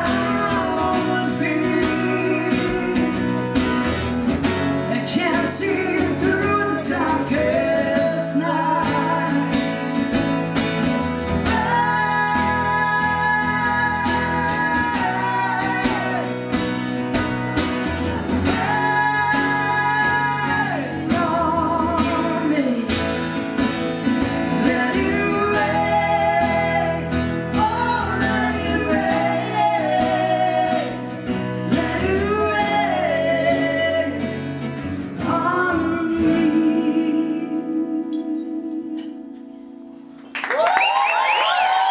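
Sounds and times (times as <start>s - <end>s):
woman singing: 0.0s - 3.2s, 4.9s - 9.6s, 11.4s - 16.3s, 18.5s - 22.9s, 24.6s - 31.0s, 31.7s - 34.2s, 35.2s - 39.2s
strummed acoustic guitars: 0.0s - 40.3s.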